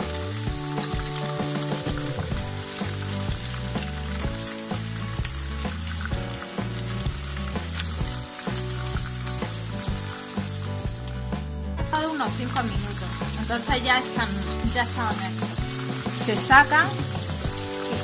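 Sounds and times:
background music with bass line: 0.0 - 18.0
prawns sizzling in hot oil: 0.0 - 18.0.

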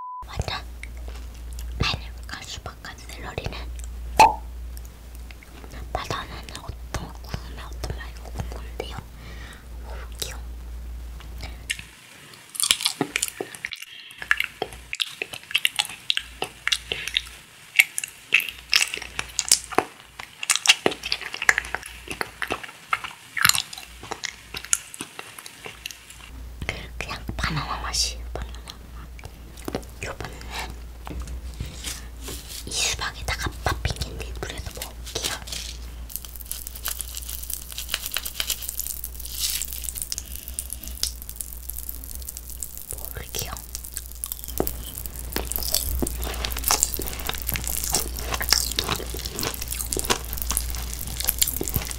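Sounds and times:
wet chewing clicks and smacks: 12.6 - 26.3, 36.1 - 51.9.

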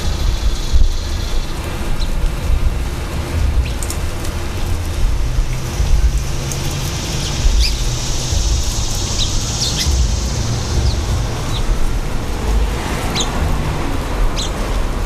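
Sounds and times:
high hiss: 0.0 - 15.0
steady low rumble: 0.0 - 15.0
small birds chirping: 5.4 - 11.8.

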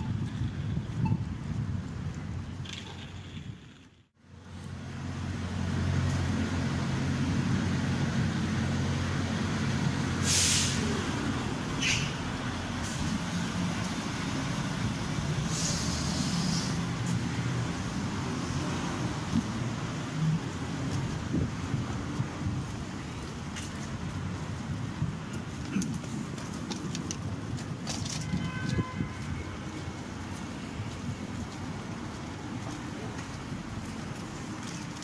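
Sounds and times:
traffic noise: 0.0 - 35.0
air brake hiss: 10.2 - 11.0, 15.4 - 16.8.

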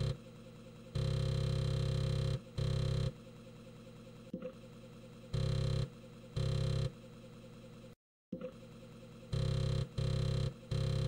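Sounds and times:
floppy disk drive buzzing: 0.0 - 0.2, 1.0 - 3.1, 5.3 - 6.9, 9.3 - 11.0.

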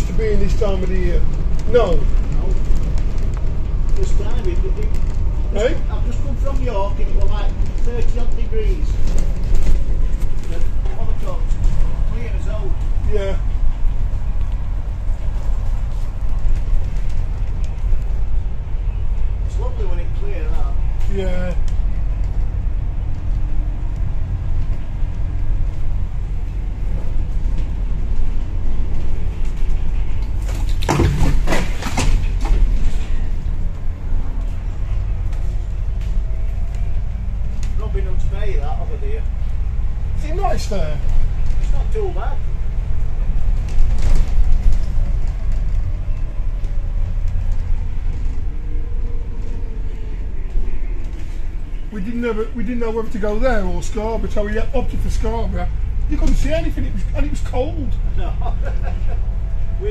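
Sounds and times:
bus engine and road rumble: 0.0 - 59.9
tree branches scraping bus: 0.0 - 59.9
body and window rattles: 27.0 - 33.6.

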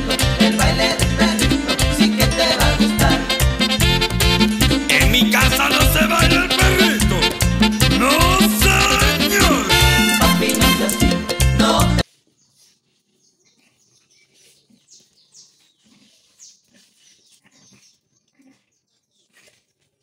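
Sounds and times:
dogs play-fighting on concrete: 0.0 - 4.9, 7.3 - 8.6, 9.8 - 20.0
latin dance song: 0.0 - 12.1.

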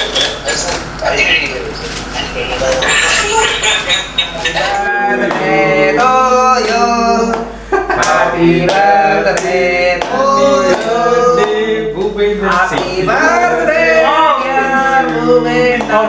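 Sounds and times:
men singing: 4.6 - 16.0
hand claps: 5.2 - 13.0, 14.4 - 16.0.

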